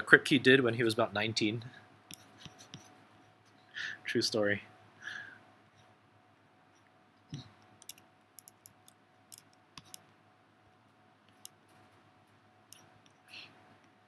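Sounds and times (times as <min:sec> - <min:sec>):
computer keyboard keystrokes: 0:07.8 - 0:10.0.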